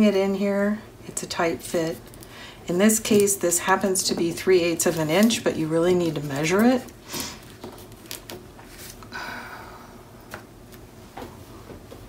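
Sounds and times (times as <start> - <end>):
paper rustling and sliding: 4.8 - 9.0.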